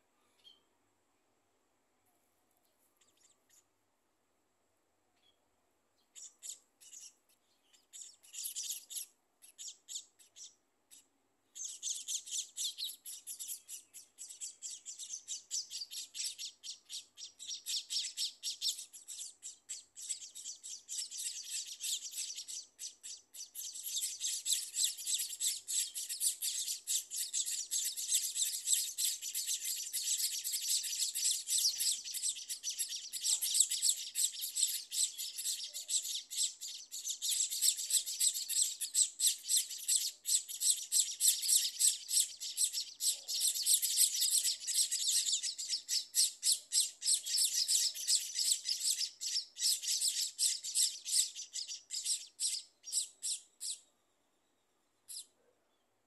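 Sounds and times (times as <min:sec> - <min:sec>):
nestlings begging chirps: 0:06.0 - 0:53.8, 0:55.1 - 0:55.3.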